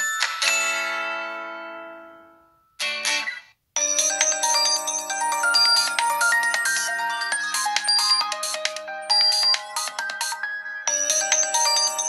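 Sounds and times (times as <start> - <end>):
melodic ringtone quick bright notes: 3.8 - 12.0
phone ringtone chord: 3.8 - 12.0.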